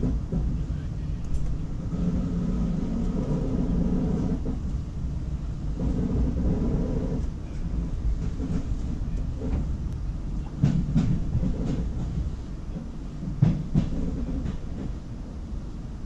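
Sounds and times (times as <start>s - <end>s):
train rumble on board: 0.0s - 16.0s
wheels clacking over rail joints: 5.7s - 15.0s.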